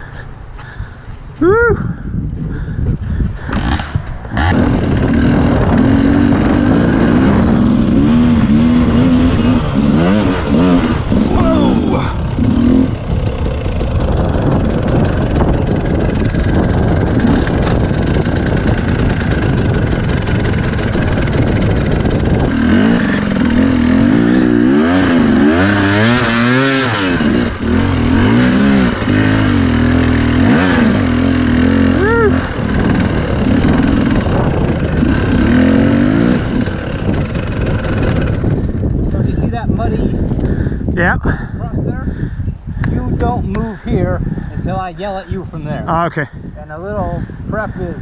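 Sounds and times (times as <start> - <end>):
dirt bike engine revving: 3.4 - 39.9.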